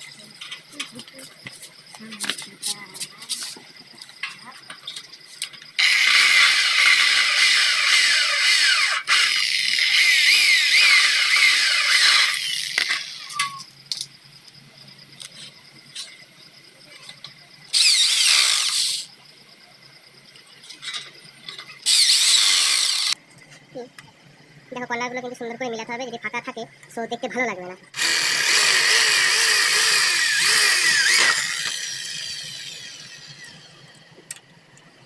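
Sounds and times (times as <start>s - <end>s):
electric drill drilling into metal: 5.8s - 13.4s, 17.7s - 19.1s, 21.8s - 23.2s, 28.0s - 33.7s.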